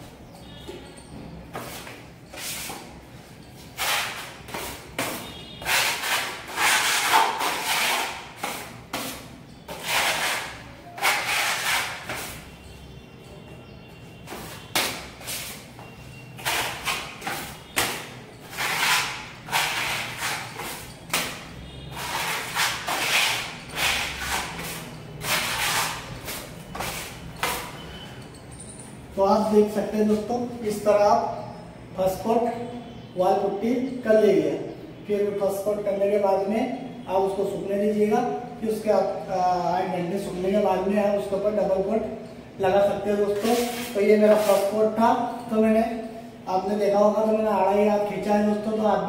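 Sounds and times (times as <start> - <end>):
putty knife scraping wall: 3.8 - 12.4, 16.4 - 27.7.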